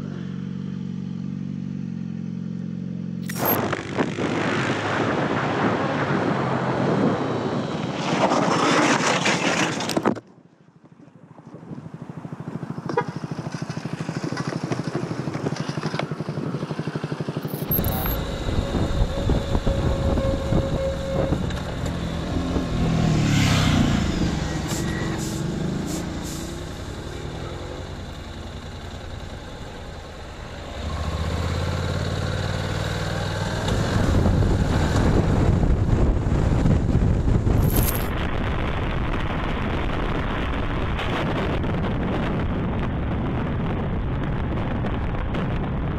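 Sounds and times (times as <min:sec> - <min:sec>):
motorcycle engine: 0:00.0 - 0:04.6, 0:11.7 - 0:38.2
motorcycle engine revving: 0:12.0 - 0:38.1
wind noise: 0:17.4 - 0:27.2, 0:33.6 - 0:45.9.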